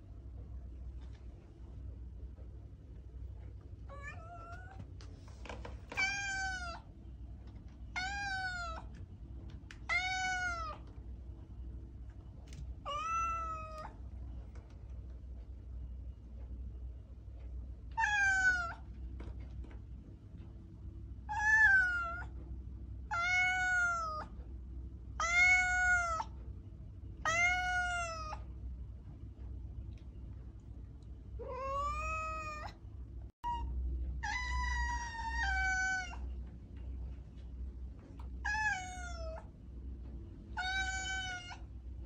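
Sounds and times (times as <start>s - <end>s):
low steady hum: 0.0s - 42.0s
cat meowing: 3.9s - 4.8s, 5.9s - 6.9s, 7.9s - 8.9s, 9.8s - 10.9s, 12.8s - 14.0s, 18.0s - 18.8s, 21.3s - 22.3s, 23.1s - 24.3s, 25.2s - 26.3s, 27.2s - 28.4s, 31.4s - 32.8s, 33.4s - 36.3s, 38.4s - 39.5s, 40.6s - 41.7s.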